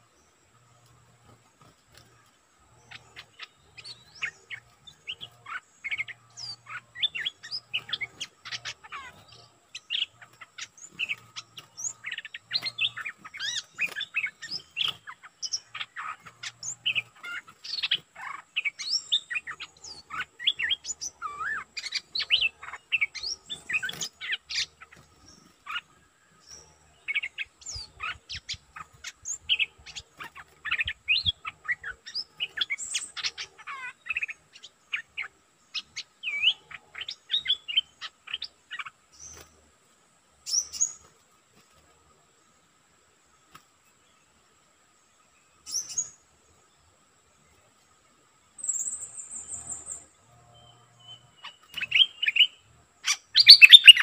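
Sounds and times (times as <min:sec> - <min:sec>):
bulbul chirping and whistling: 0:51.5 - 0:54.0.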